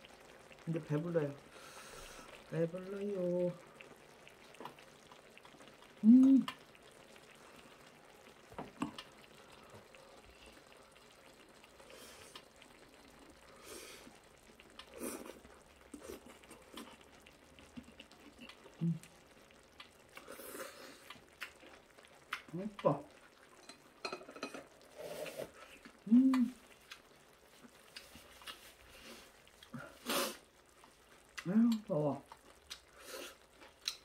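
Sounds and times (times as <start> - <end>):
wet chewing and slurping: 3.8 - 23.7, 24.6 - 31.5, 32.3 - 34.0
person humming mm: 6.0 - 6.6, 18.4 - 19.1, 25.8 - 26.7.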